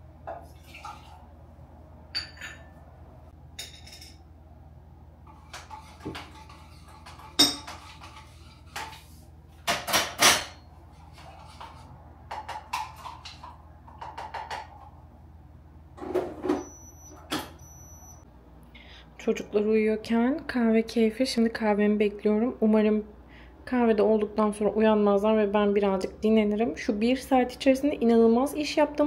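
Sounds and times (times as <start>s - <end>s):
dishes and cups clinking: 2.2s - 2.8s, 3.6s - 4.2s, 5.3s - 9.0s.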